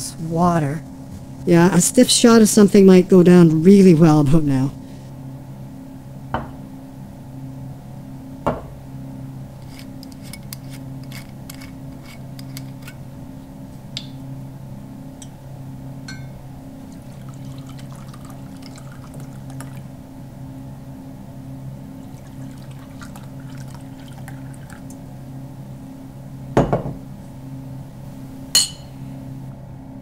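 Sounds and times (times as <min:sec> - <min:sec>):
glass bottle set down clunk: 0:06.4 - 0:06.6, 0:26.6 - 0:27.0
glass clinks: 0:16.1 - 0:16.4, 0:28.6 - 0:29.0
liquid pouring into glass: 0:16.9 - 0:19.9, 0:22.0 - 0:25.0.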